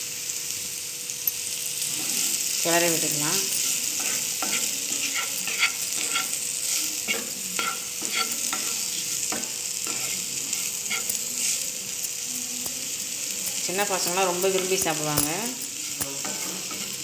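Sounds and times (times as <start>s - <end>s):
vegetables sizzling in oil: 0.0s - 17.0s
spatula scraping and tapping pan: 3.5s - 12.8s, 13.4s - 17.0s.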